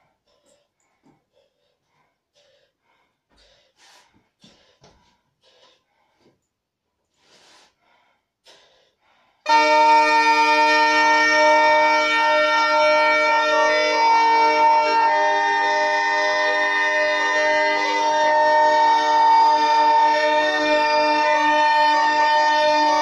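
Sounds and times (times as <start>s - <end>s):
puffs of breath: 0.0s - 9.5s
bagpipe drones and melody: 9.5s - 23.0s.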